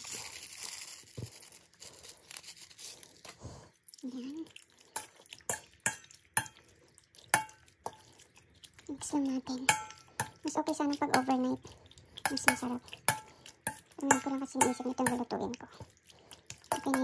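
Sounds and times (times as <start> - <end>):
seasoning granules pouring: 0.0 - 2.8
metal spoon clinking against bowl: 9.6 - 10.4, 12.3 - 15.3, 16.7 - 17.0.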